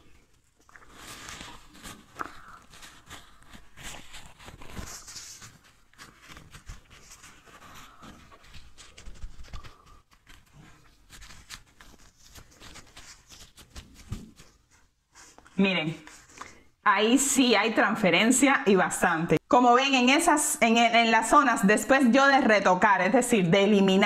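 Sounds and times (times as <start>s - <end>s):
paper rustling and crinkling: 0.0s - 16.6s.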